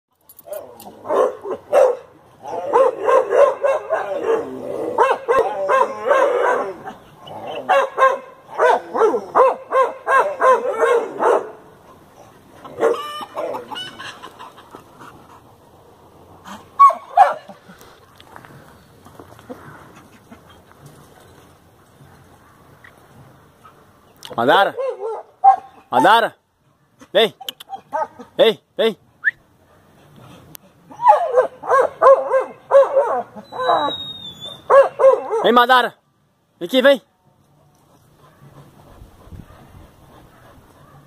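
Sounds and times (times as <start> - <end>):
dog barking: 1.1 - 6.9, 7.6 - 11.6, 12.8 - 13.1, 16.8 - 17.6, 24.7 - 25.7, 31.0 - 33.9, 34.6 - 35.6
chickens squawking: 12.2 - 15.1.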